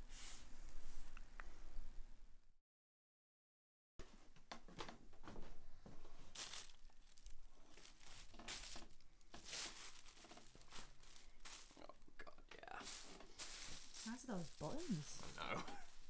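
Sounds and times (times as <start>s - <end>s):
shirt fabric rustling: 5.1s - 12.0s, 12.7s - 16.0s
tissue paper crinkling: 6.2s - 12.1s, 12.7s - 16.0s.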